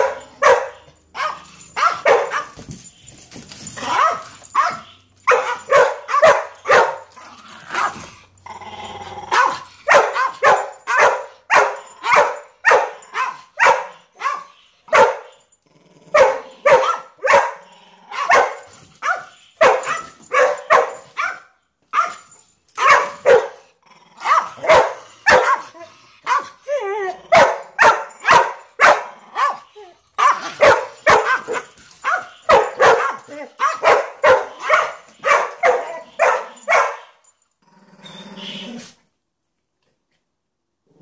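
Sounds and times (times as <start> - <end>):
dog barking sharply: 3.9 - 7.0, 9.3 - 15.2, 16.2 - 17.5, 22.0 - 22.2, 22.8 - 23.5, 24.3 - 25.7, 27.4 - 29.6, 30.2 - 37.0
dog growling: 7.2 - 9.7, 15.6 - 16.7, 17.6 - 18.3, 23.8 - 24.7, 37.6 - 39.0.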